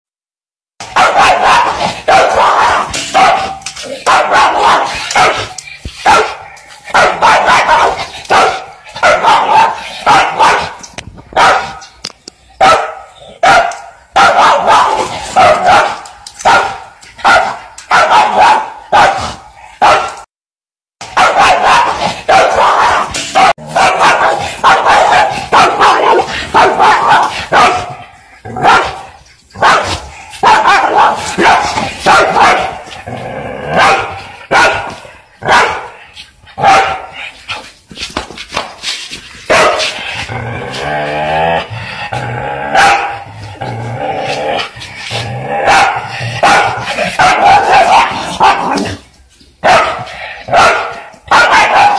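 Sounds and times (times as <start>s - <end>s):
dog barking loudly: 0.8s - 12.0s, 12.6s - 20.3s, 21.0s - 33.0s, 33.6s - 36.0s, 36.6s - 37.2s, 39.5s - 40.0s, 42.7s - 43.4s, 45.5s - 49.0s, 49.6s - 51.9s.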